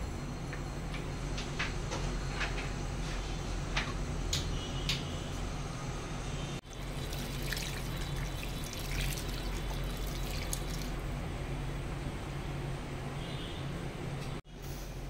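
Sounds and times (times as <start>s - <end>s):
steady low hum: 0.0s - 15.0s
water pouring into a pot: 6.6s - 11.1s.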